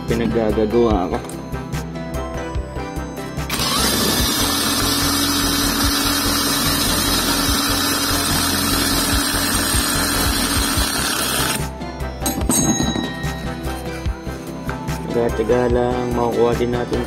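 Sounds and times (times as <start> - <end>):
impact wrench motor hum: 3.5 - 11.7.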